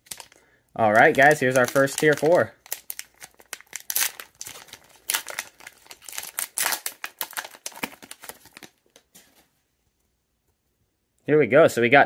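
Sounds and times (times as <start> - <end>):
foil wrapper crinkling and tearing: 0.0 - 8.9.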